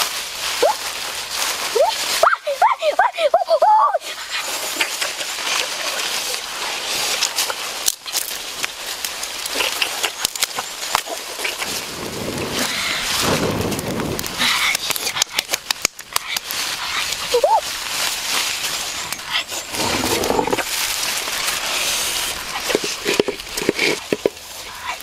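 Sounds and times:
dry leaves crackling: 0:00.0 - 0:25.0
leafy branches rustling: 0:00.0 - 0:25.0
sharp snaps and clicks: 0:07.2 - 0:11.8, 0:14.2 - 0:16.6.

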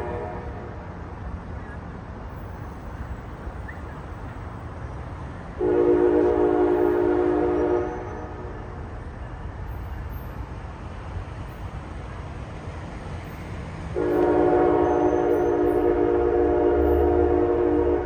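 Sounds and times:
locomotive air horn: 0:00.0 - 0:00.7, 0:05.6 - 0:08.8, 0:14.0 - 0:18.0.

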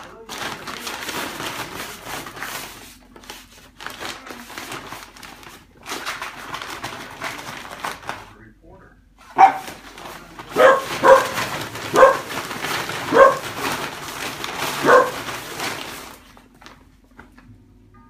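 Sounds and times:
plastic bag crinkling: 0:00.0 - 0:08.3, 0:09.4 - 0:17.4
dog barking: 0:09.3 - 0:09.8, 0:10.5 - 0:13.7, 0:14.8 - 0:15.3.

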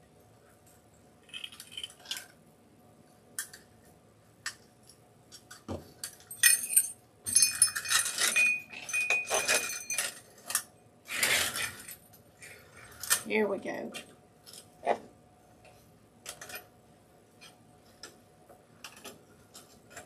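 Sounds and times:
wire frame rattling and jangling: 0:06.0 - 0:10.6.

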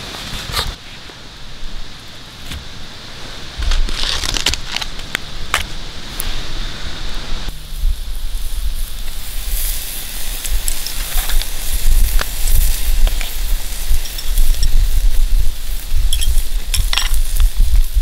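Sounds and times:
campfire crackling and popping: 0:03.6 - 0:06.5, 0:07.3 - 0:18.0
meat sizzling on a grill: 0:07.5 - 0:18.0.

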